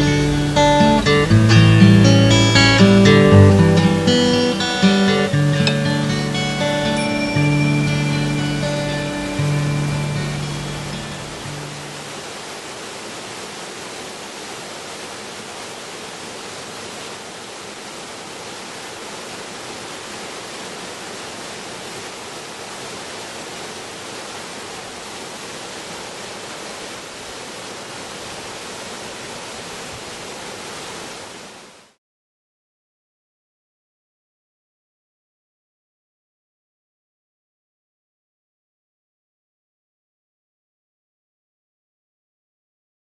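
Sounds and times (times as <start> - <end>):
waterfall rushing: 0.0 - 32.0.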